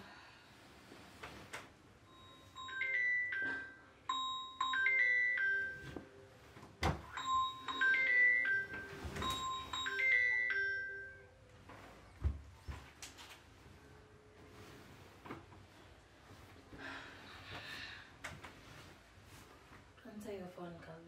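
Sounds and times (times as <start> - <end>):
mobile phone ringtone: 2.1 - 6.4, 7.1 - 11.4.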